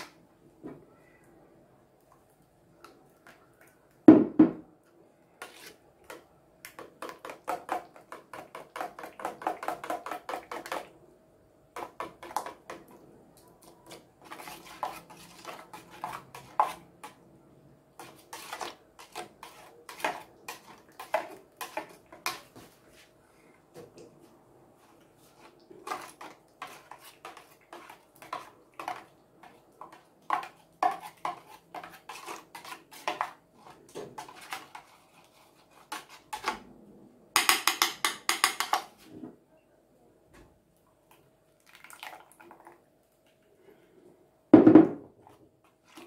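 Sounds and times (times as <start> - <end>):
metal spoon scraping a strainer: 5.4 - 5.8, 13.9 - 17.2, 29.9 - 36.6
loud knock: 44.6 - 45.1.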